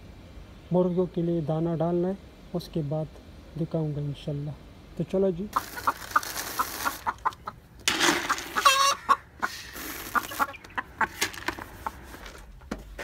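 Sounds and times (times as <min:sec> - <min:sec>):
hen clucking: 0:05.5 - 0:12.4
hens pecking plastic bowl: 0:05.6 - 0:12.5.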